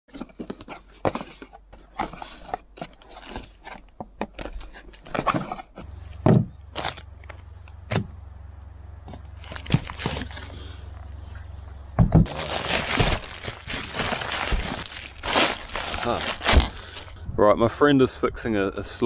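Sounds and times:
low steady hum: 0.1s - 19.0s
plastic bags and bubble wrap crinkling: 6.7s - 7.1s, 9.3s - 10.6s, 12.2s - 17.2s
cardboard scraping and knocking: 12.0s - 16.9s.

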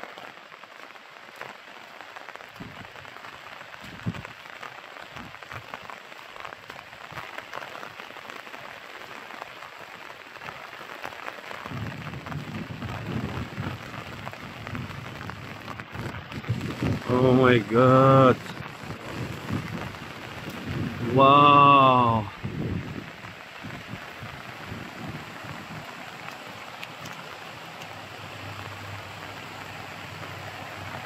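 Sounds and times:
rain falling: 0.0s - 31.0s.

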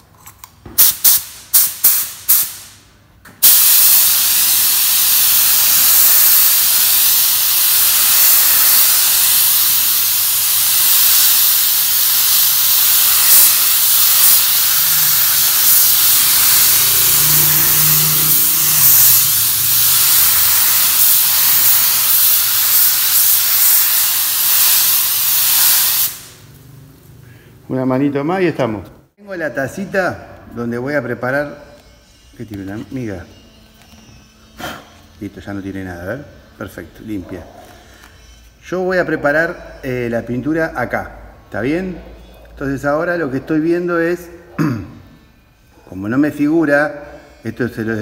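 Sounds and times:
spray gun hissing: 0.8s - 2.8s, 3.4s - 26.5s.

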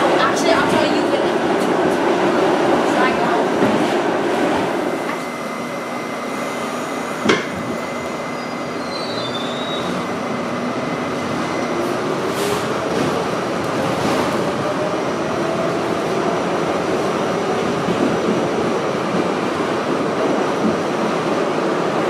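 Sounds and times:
wheels rumbling on rail: 0.0s - 22.0s
high wheel squeal: 7.7s - 10.1s.

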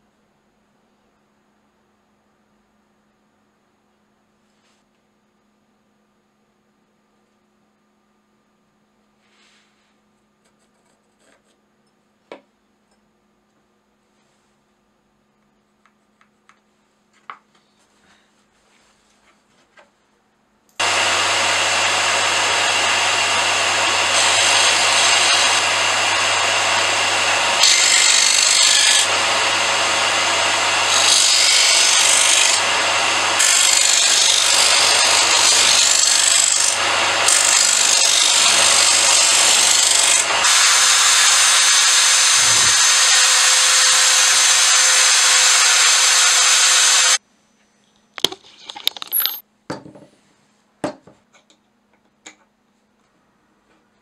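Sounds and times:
disc sander motor hum: 20.8s - 31.9s, 32.5s - 33.7s
wood grinding on sanding disc: 20.8s - 47.2s.

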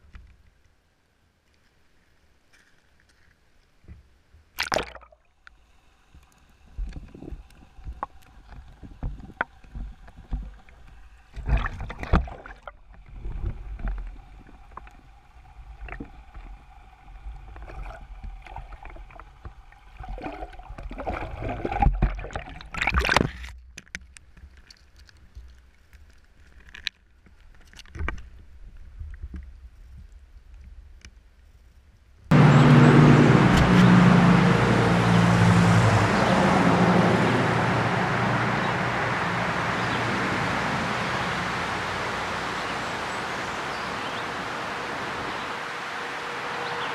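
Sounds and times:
muffled underwater knocks and bumps: 6.8s - 15.0s
loud steady rushing noise: 32.3s - 46.9s.

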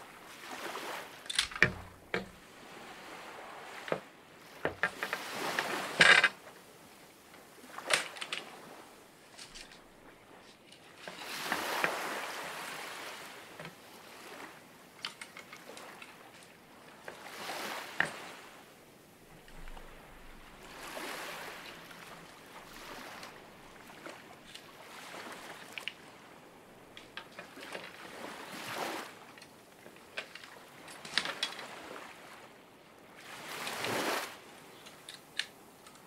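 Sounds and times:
water sloshing and splashing: 0.0s - 35.3s
sharp clicks and knocks: 1.3s - 2.4s.

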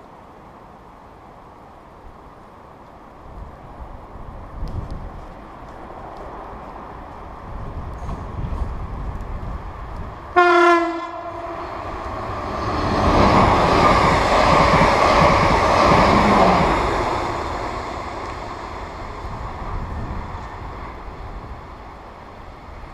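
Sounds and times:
train wheels rushing on rail: 1.4s - 22.9s
train horn blast: 10.3s - 12.1s.

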